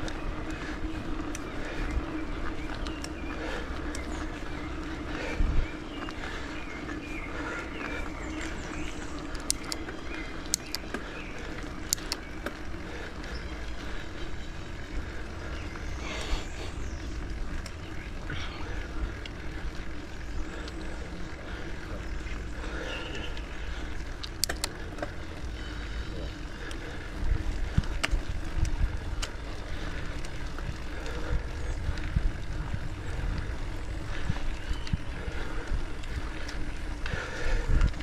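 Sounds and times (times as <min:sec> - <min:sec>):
bicycle tyre and drivetrain noise: 0:00.0 - 0:38.0
wind rumble on microphone: 0:00.0 - 0:38.0
sharp clicks: 0:11.6 - 0:12.6, 0:24.2 - 0:25.1.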